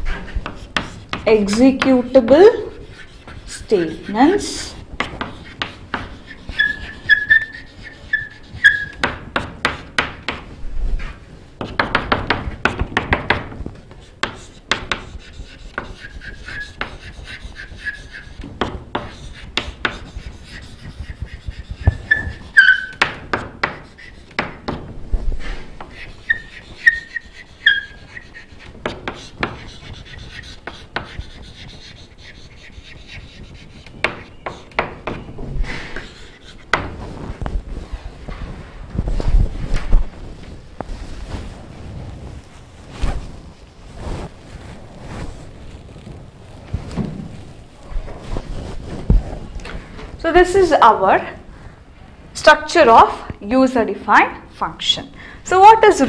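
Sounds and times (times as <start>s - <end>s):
chalk squeaks: 0.0s - 37.9s
chalk tapping and scratching: 0.0s - 51.0s.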